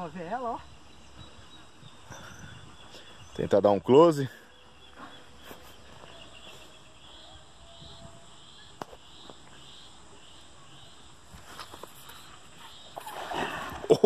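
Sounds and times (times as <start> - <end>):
faint insect chirping: 0.0 - 13.8.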